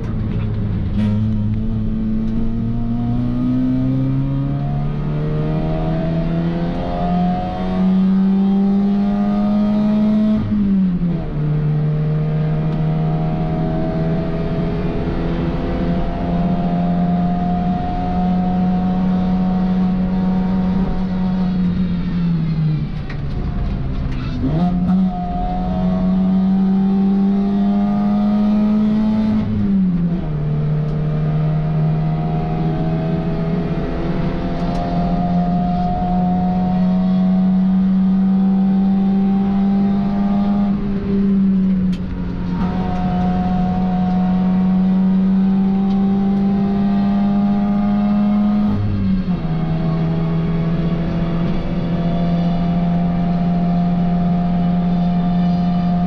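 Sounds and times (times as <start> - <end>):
race car engine revving: 0.0 - 56.0.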